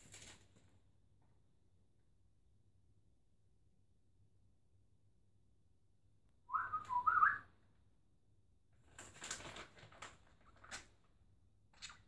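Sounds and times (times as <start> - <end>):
budgerigar whistling: 6.5 - 7.4.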